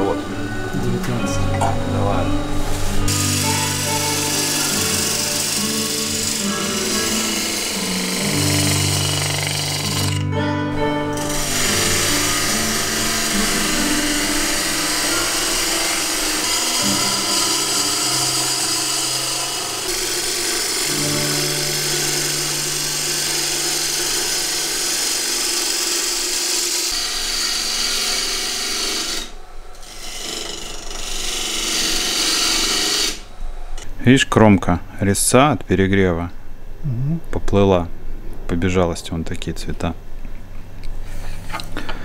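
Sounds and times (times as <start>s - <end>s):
lathe hum: 0.0s - 33.9s
gouge rasping wood: 2.8s - 10.2s, 11.2s - 33.2s.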